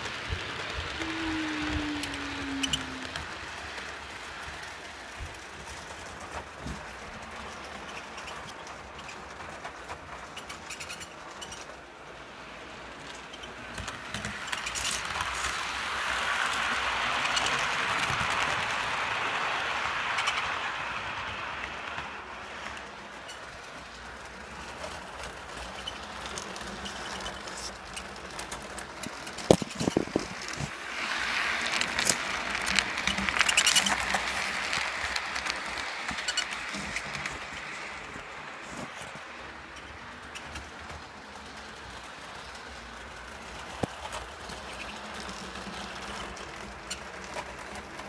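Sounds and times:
model train wheels rattling: 0.0 - 48.0.

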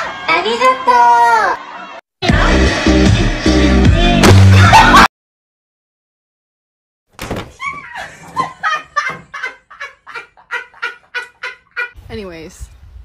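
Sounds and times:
person laughing hard: 4.5 - 5.1, 7.6 - 12.0.

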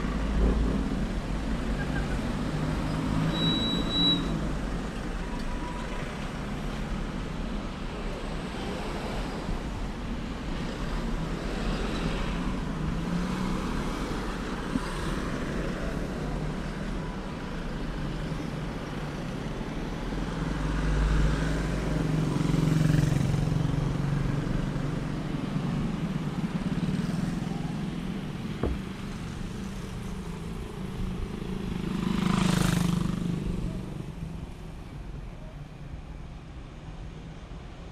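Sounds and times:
cars and motorcycles passing: 6.0 - 34.8.

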